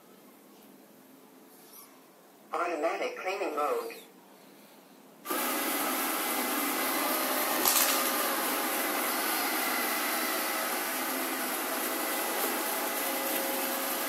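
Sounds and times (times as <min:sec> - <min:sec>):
robot vacuum running: 0:05.3 - 0:14.0
brief loud crackle: 0:07.6 - 0:08.1.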